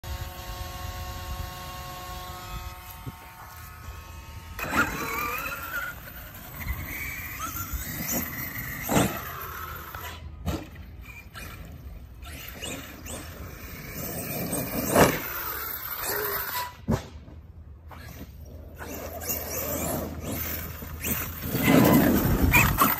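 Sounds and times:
steady buzzing tone: 0:00.0 - 0:07.3
electric motor whining: 0:00.0 - 0:10.4.

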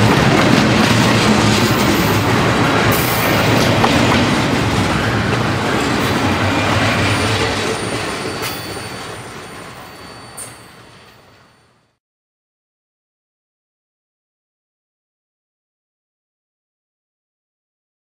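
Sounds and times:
train wheels clattering on track: 0:00.0 - 0:11.7
high wheel squeal: 0:01.8 - 0:11.9.

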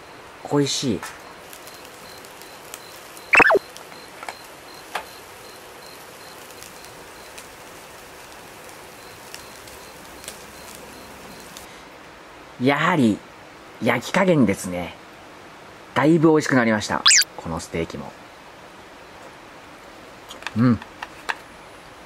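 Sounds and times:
beef sizzling on a grill: 0:00.6 - 0:11.8
short squeak falling in pitch: 0:03.4 - 0:03.6.

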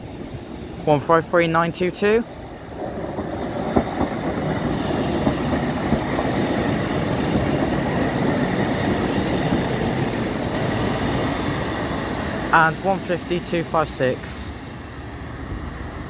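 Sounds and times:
diesel train engines running: 0:00.0 - 0:16.0
train wheels rumbling over rails: 0:00.0 - 0:16.0.

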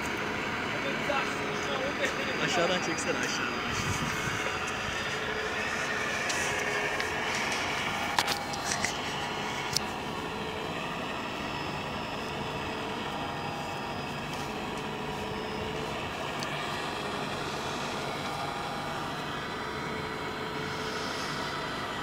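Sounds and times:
toy excavator motors whirring: 0:03.7 - 0:10.2.

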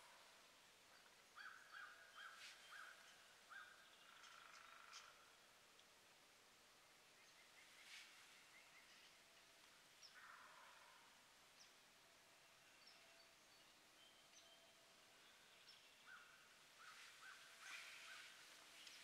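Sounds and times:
outdoor ambience: 0:00.0 - 0:19.0
lower bird calls: 0:16.0 - 0:19.0.

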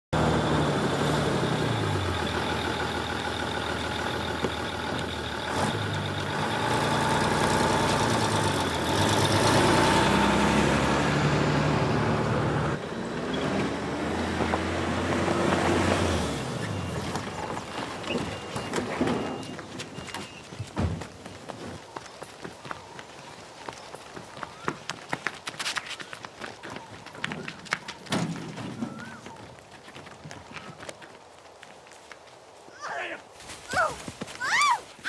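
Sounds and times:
diesel bus engine revving: 0:00.1 - 0:17.6.

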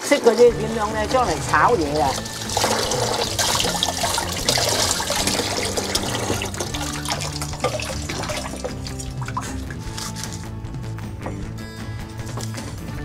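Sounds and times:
tap water splashing into sink: 0:01.8 - 0:09.5.

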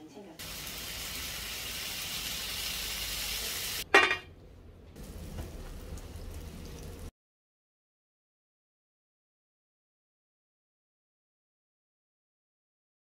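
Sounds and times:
bacon sizzling in a pan: 0:00.4 - 0:03.9, 0:05.0 - 0:07.1
butter sizzling in a pan: 0:00.4 - 0:03.9, 0:05.0 - 0:07.1.

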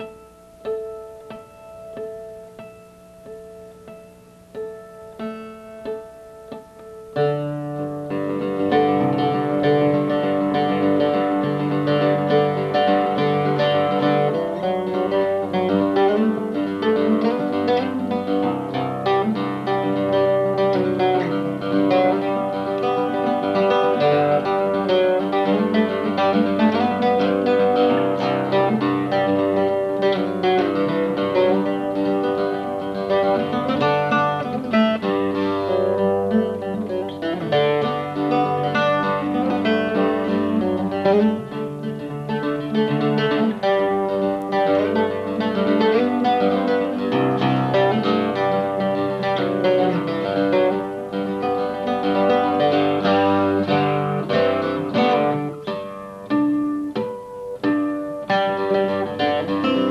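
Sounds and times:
mandocello picking a tune: 0:00.0 - 0:59.9.

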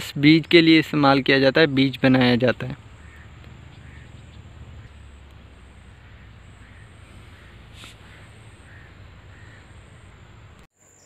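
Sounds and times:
faint bird calls: 0:02.6 - 0:11.0
insect drone: 0:02.7 - 0:11.0
low rumble: 0:02.8 - 0:10.6.

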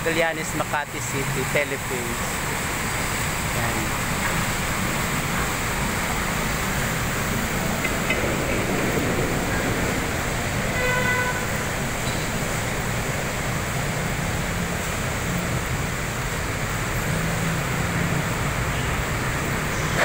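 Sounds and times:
road traffic noise: 0:00.0 - 0:20.0
car horn toot: 0:10.7 - 0:12.2.

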